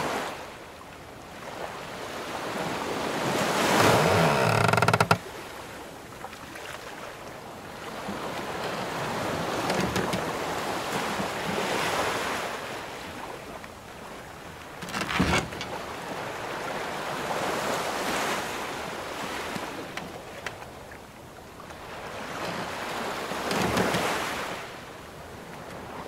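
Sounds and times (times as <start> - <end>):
ocean waves washing in: 15.7 - 26.0.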